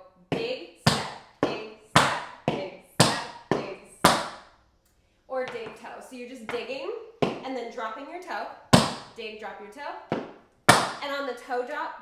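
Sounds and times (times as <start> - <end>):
tap shoes on wooden board: 0.3 - 4.4, 5.5 - 5.8, 6.5 - 7.5, 8.8 - 9.2, 10.1 - 11.0.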